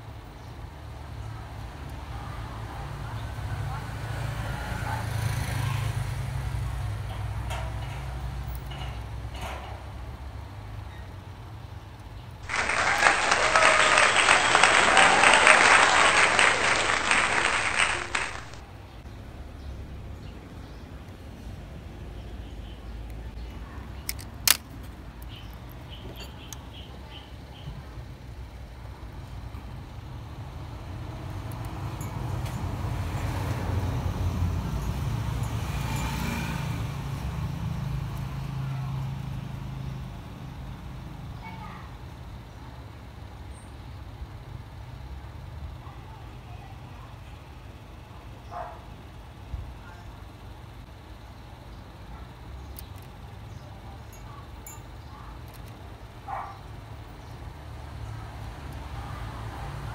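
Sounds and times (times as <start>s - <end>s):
crowd applause: 12.4s - 18.6s.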